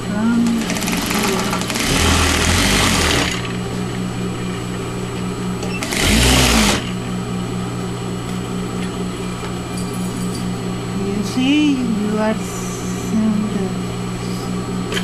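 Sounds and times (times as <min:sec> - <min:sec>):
sewing machine stitching: 0:00.4 - 0:03.6, 0:05.6 - 0:06.9.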